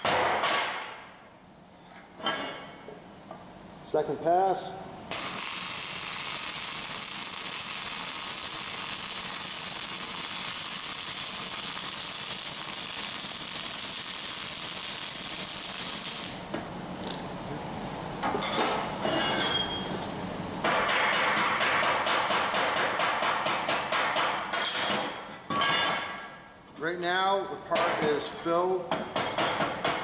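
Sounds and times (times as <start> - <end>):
welding arc hissing: 5.1 - 17.3.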